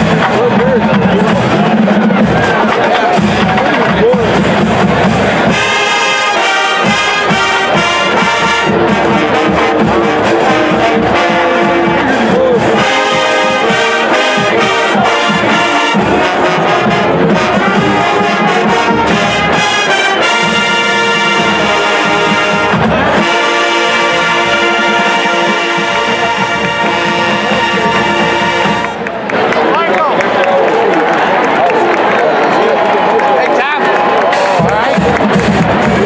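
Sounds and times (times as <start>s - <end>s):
marching band playing brass: 0.0s - 30.1s, 34.0s - 36.0s.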